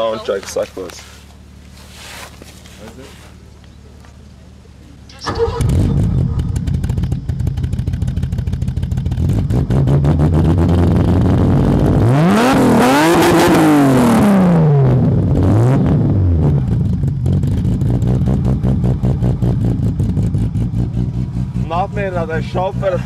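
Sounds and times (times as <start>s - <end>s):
car engine idling and revving: 0.0s - 23.0s.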